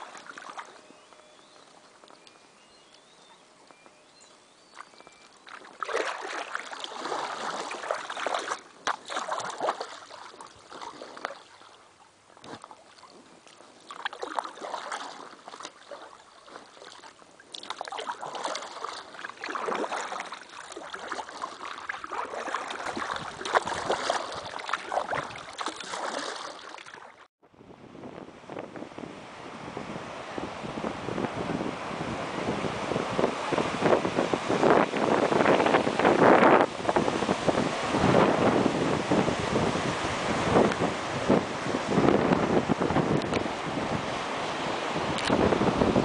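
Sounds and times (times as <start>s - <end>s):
surf on a beach: 0.0s - 1.3s, 27.6s - 46.0s
paddle splashing in water: 0.0s - 2.3s, 4.7s - 27.3s, 30.0s - 46.0s
wind: 0.0s - 46.0s.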